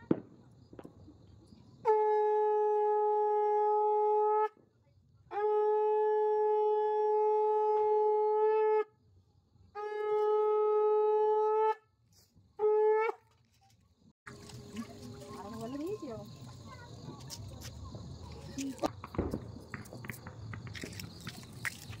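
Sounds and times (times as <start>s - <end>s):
conch shell blown: 1.8s - 4.5s, 5.3s - 8.9s, 9.8s - 11.9s.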